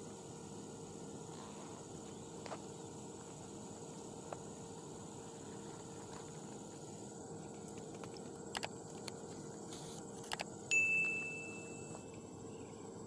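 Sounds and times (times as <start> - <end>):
faint hum of insects: 0.0 - 13.0
bell ding: 10.7 - 12.0.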